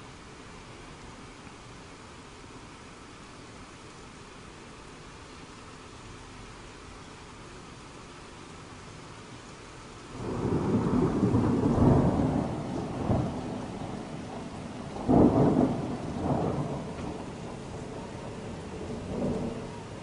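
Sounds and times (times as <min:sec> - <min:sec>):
steady rain hiss: 0:00.0 - 0:20.0
low thunder rumble: 0:10.1 - 0:20.0.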